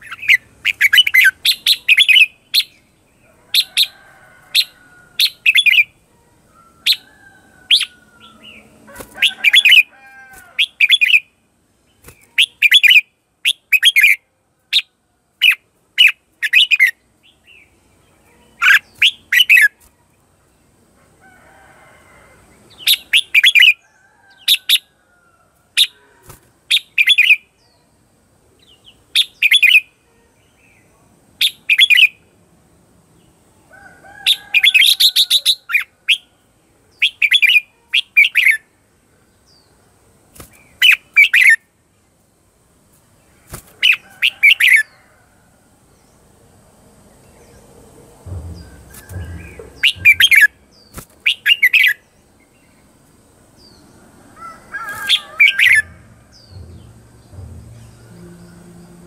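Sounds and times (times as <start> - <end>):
bird chattering calls: 48.9 - 50.6.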